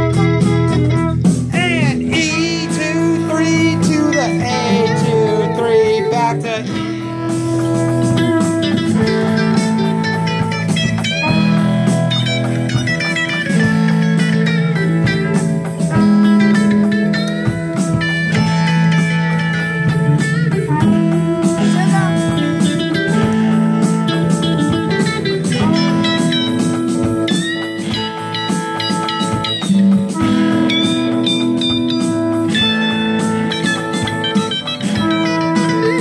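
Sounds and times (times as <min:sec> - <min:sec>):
electric guitars playing: 0:00.0 - 0:36.0.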